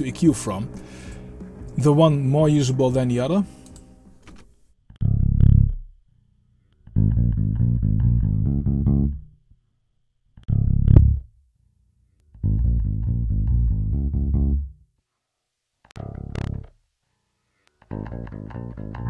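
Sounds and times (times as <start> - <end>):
bass guitar notes: 0.0 - 4.2, 4.9 - 6.0, 6.8 - 9.4, 10.4 - 11.4, 12.3 - 14.8, 16.0 - 16.8, 17.8 - 19.0.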